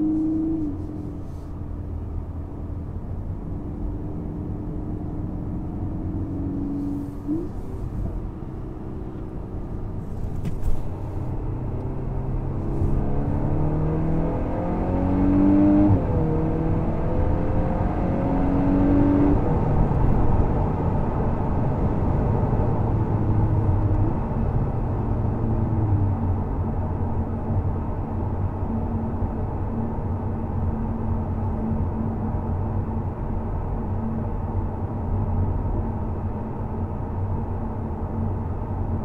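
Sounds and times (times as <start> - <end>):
car engine accelerating: 0.0 - 26.6
tyre and road noise: 5.4 - 16.4.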